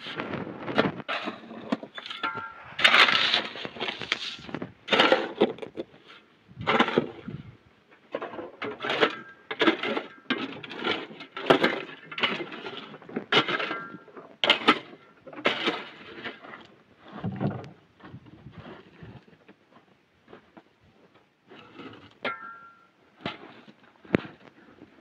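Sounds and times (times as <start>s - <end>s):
shovel scraping stony dirt: 0.0s - 7.4s, 21.5s - 24.4s.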